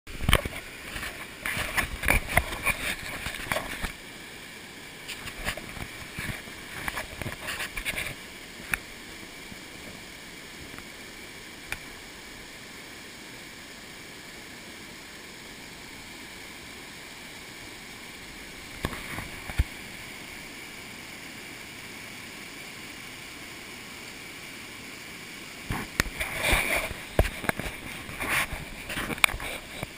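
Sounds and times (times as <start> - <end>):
camera handling rustles: 0.2 - 4.0, 25.7 - 29.9.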